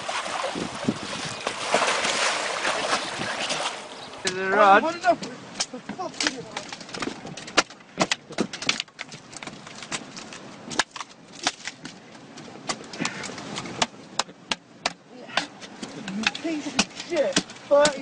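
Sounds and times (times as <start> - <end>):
sharp irregular knocks and clicks: 5.2 - 12.0, 12.7 - 18.0.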